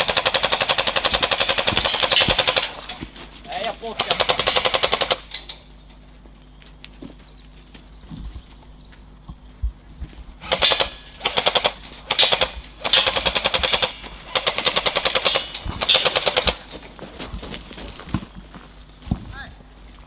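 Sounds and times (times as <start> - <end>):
airsoft rifles firing bursts: 0.0 - 2.9, 3.7 - 5.4, 10.4 - 16.7.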